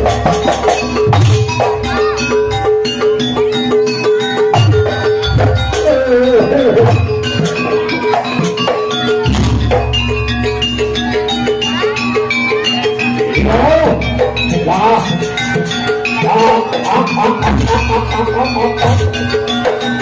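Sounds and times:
person singing wavering vocals: 5.7s - 7.0s, 16.0s - 19.3s.

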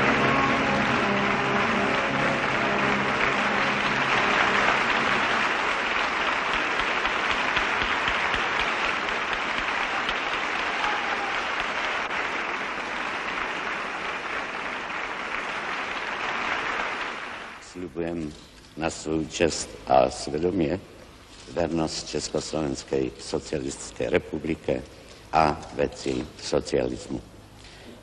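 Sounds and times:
crowd applauding: 0.0s - 17.7s.

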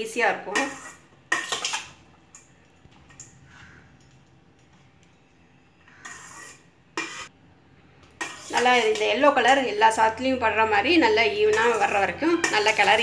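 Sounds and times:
spoon scraping metal bowl: 0.4s - 1.9s, 5.8s - 7.3s, 8.2s - 10.0s, 10.8s - 13.0s.

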